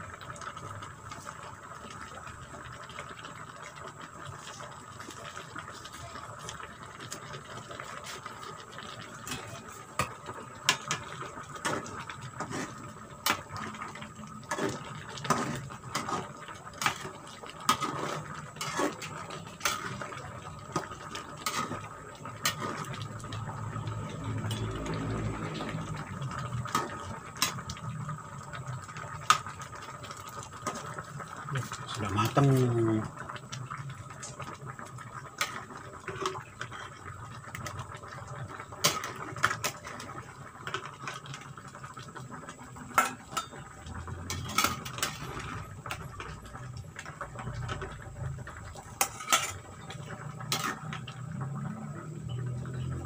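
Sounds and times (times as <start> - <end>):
soup simmering and bubbling: 0.0 - 53.0
metal ladle scraping a pan: 9.2 - 13.7, 14.4 - 23.2, 24.2 - 25.8, 38.8 - 40.1, 42.9 - 46.3, 48.8 - 51.4.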